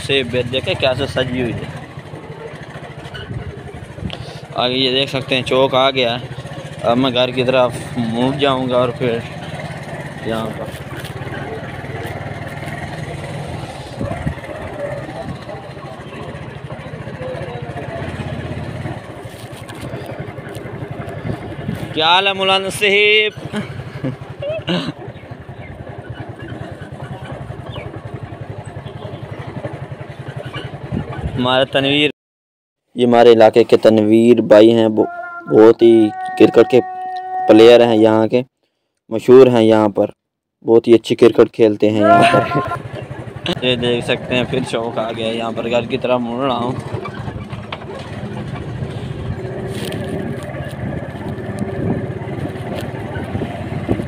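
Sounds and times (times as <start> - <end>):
motorcycle engine running: 0.0 - 32.1, 42.0 - 54.0
knocks and rattles: 46.5 - 54.0.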